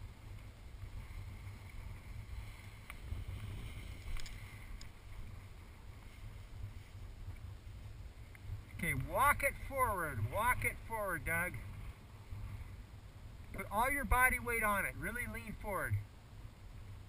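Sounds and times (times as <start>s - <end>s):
wind buffeting microphone: 0.0s - 14.3s
faint clicks: 2.8s - 5.0s, 8.2s - 9.1s.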